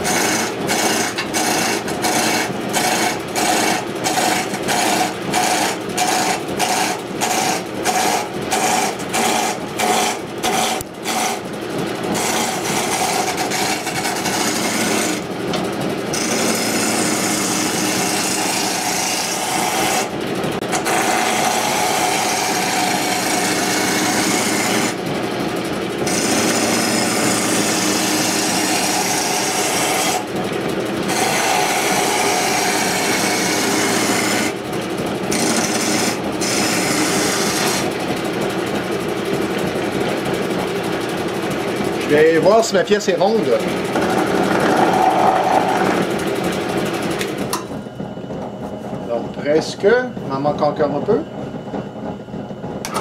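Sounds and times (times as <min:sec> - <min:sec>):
lathe gouge scraping wood: 0:00.0 - 0:15.3, 0:16.1 - 0:25.0, 0:26.0 - 0:30.2, 0:31.0 - 0:34.6, 0:35.3 - 0:38.0, 0:42.0 - 0:47.3.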